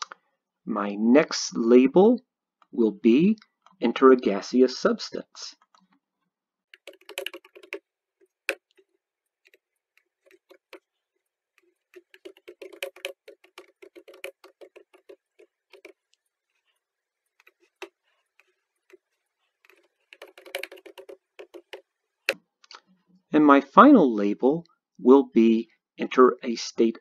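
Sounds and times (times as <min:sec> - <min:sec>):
computer keyboard typing: 0:06.7 - 0:10.9, 0:11.5 - 0:16.6, 0:17.2 - 0:21.9.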